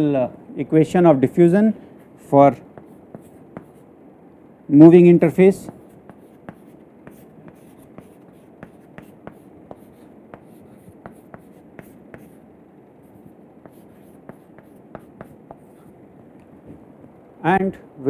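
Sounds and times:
chalk tapping and scratching: 2.7 - 3.9, 5.6 - 12.4, 13.0 - 16.0.

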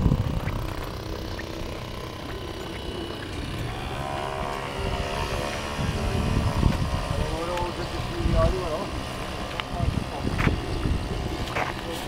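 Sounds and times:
low uneven rumble: 0.0 - 12.0
model boat motor whine: 0.0 - 12.0.

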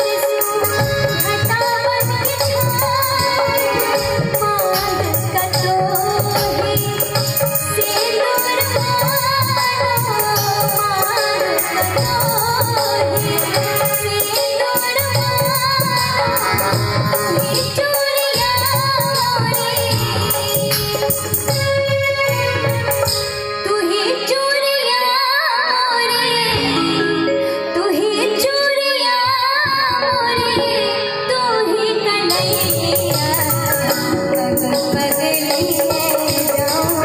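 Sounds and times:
hand percussion: 0.0 - 24.0, 32.2 - 37.0
wavering melody: 32.3 - 37.0.

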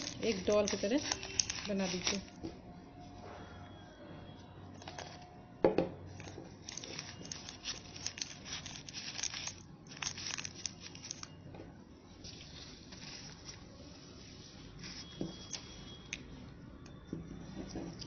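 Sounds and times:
newspaper crinkling and rustling: 0.0 - 2.4, 12.3 - 15.2.

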